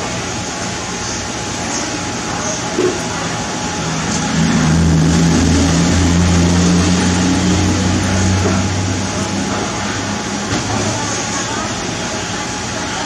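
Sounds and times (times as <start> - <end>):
low engine hum: 2.9 - 11.1.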